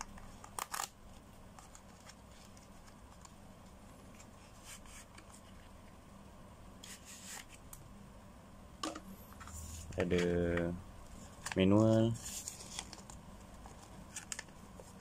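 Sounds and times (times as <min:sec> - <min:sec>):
cardboard rustle: 0:11.4 - 0:15.0.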